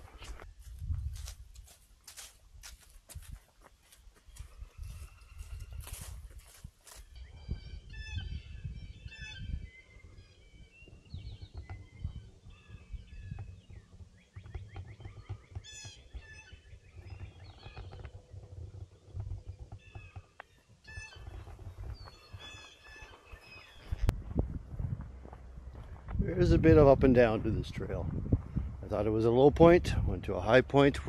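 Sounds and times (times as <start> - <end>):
footsteps on a trail: 0.0 - 7.2, 12.5 - 26.3
birds chirping and trilling: 3.8 - 24.4.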